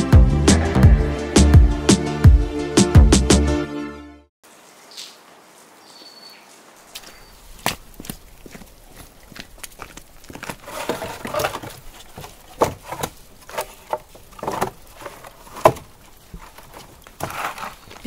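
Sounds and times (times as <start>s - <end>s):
wooden planks knocking together: 10.3s - 18.0s.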